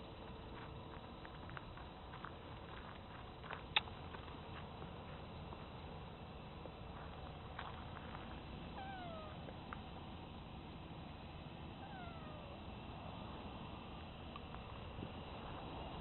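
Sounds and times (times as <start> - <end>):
cat meowing: 8.8 - 9.5, 11.8 - 12.6.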